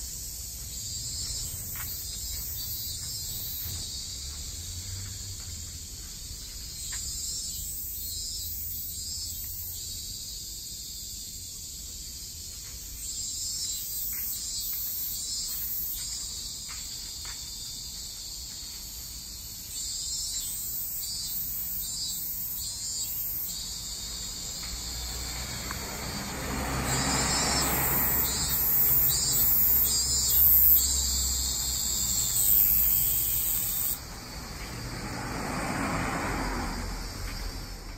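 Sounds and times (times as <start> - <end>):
insects pulsing calls: 0.0 - 37.9
car passing: 1.0 - 6.6, 23.4 - 37.9.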